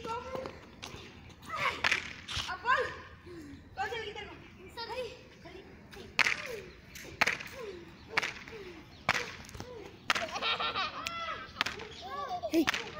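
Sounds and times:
hand slaps: 0:06.2 - 0:08.5, 0:09.1 - 0:10.4, 0:11.0 - 0:12.0, 0:12.6 - 0:12.9.

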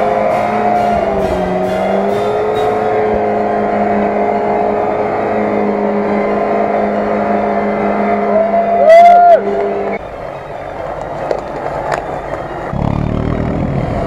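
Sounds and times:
car engine at high revs: 0:00.0 - 0:10.0.

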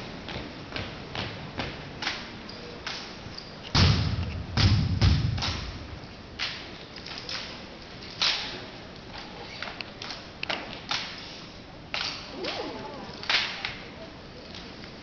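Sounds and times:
rifles smacking into hands: 0:03.7 - 0:05.8.

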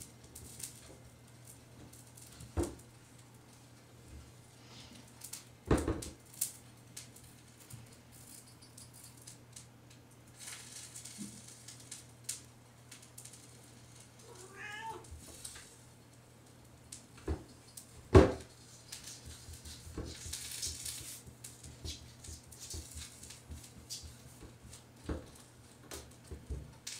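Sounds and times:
cat meowing: 0:14.2 - 0:15.1.

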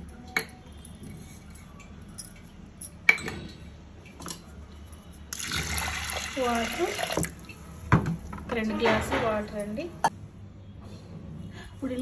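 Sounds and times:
water pouring into pot: 0:05.3 - 0:07.4.

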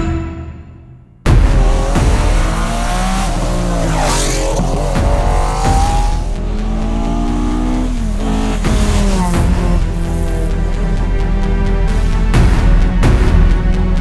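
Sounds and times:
rally car engines revving hard: 0:01.3 - 0:11.0.

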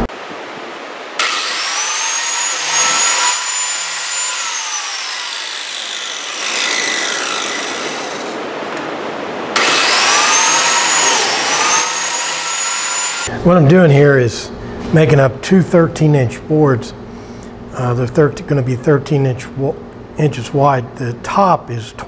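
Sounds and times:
biscuit joiner motor whining: 0:01.2 - 0:08.4, 0:09.5 - 0:13.3.

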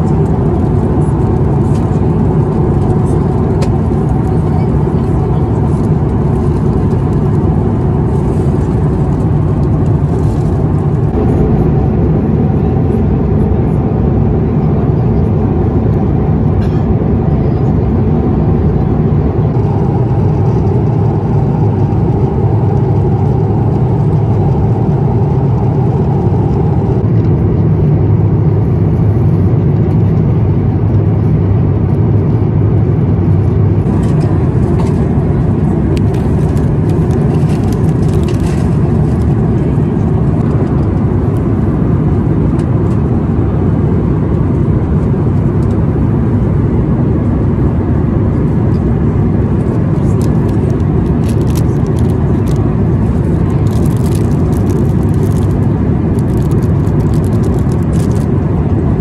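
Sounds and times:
airliner cabin noise: 0:00.0 - 0:59.0
plastic wrapping crinkling: 0:51.2 - 0:52.6, 0:53.4 - 0:55.6, 0:56.2 - 0:58.3.

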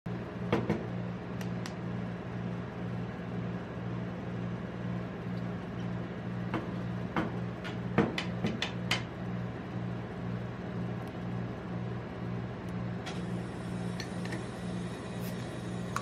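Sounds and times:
refrigeration machine hum: 0:00.1 - 0:16.0.

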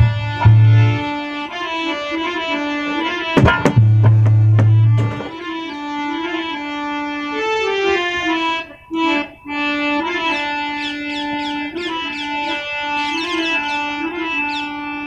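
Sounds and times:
harmonium melody: 0:00.0 - 0:15.0.

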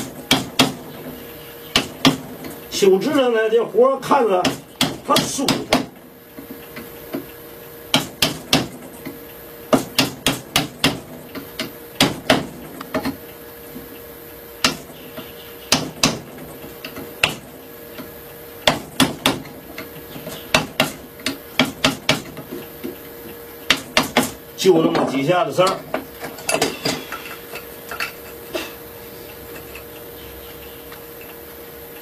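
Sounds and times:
hammer tapping chisel into wood: 0:20.5 - 0:23.0.

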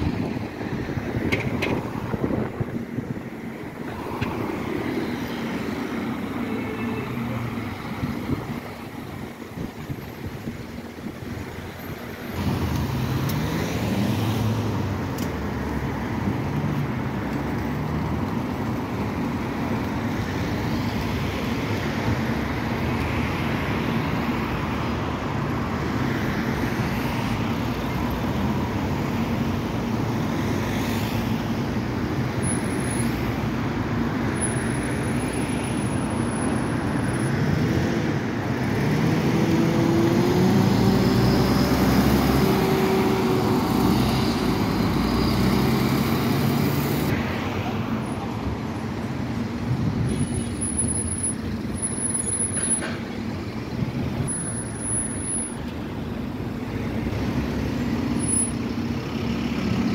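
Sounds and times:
road traffic: 0:00.0 - 0:59.9
bus diesel engine accelerating: 0:37.4 - 0:48.0.

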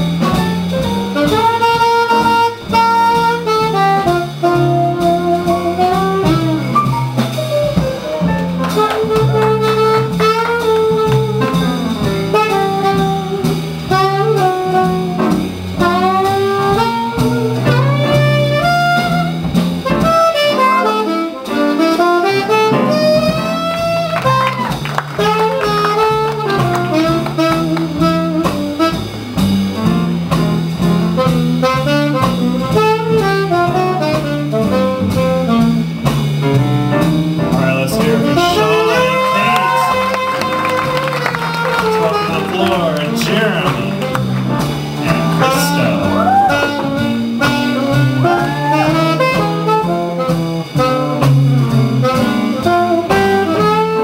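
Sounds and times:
drums: 0:00.0 - 0:54.0
walking bass: 0:00.0 - 0:54.0
sliding melody line: 0:37.4 - 0:54.0.

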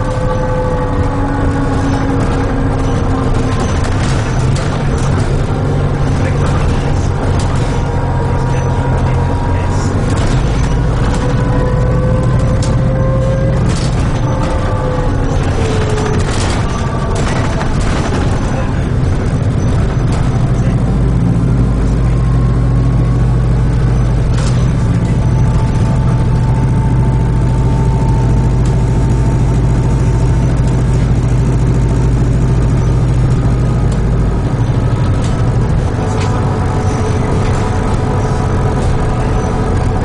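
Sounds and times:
sharp knocks and rattles: 0:00.0 - 0:21.6
bus drivetrain hum: 0:00.0 - 0:40.0.

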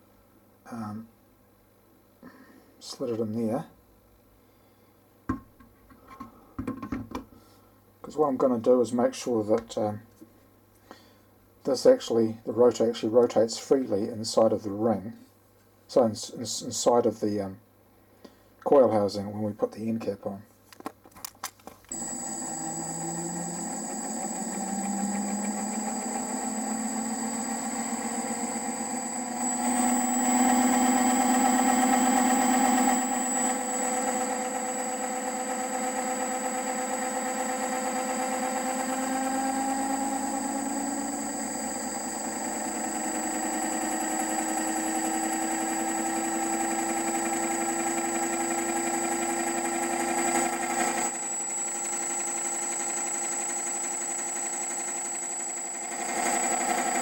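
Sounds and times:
generator mechanical hum and whine: 0:21.6 - 0:57.0.

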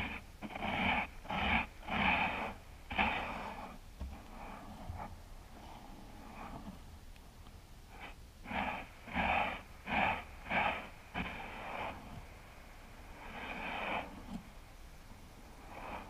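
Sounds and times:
hand scraping beach sand: 0:00.0 - 0:06.9, 0:07.9 - 0:16.0.

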